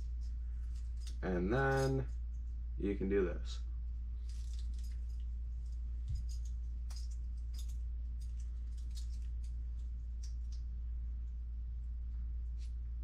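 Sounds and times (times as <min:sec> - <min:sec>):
steady low hum: 0:00.0 - 0:13.0
strap and buckle clicks and rustles: 0:04.2 - 0:10.6.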